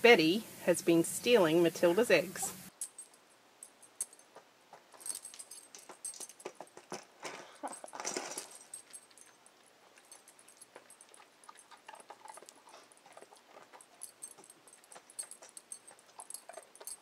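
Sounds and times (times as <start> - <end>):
beaks pecking metal bowl: 8.8 - 17.0.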